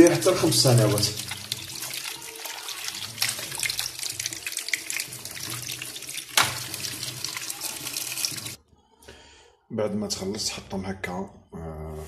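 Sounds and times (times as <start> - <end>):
tap water pouring into sink: 0.0 - 8.6.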